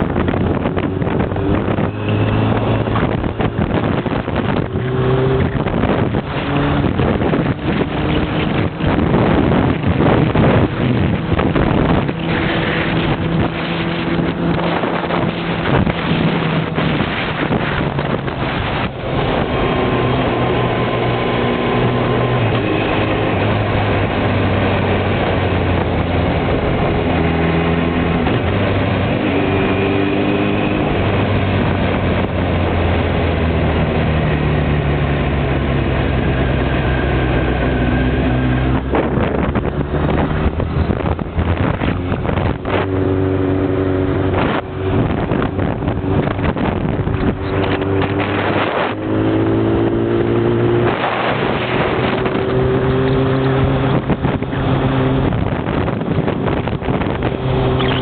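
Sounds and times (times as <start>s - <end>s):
motorcycle engine revving: 0.0s - 58.0s
wind buffeting microphone: 0.0s - 58.0s.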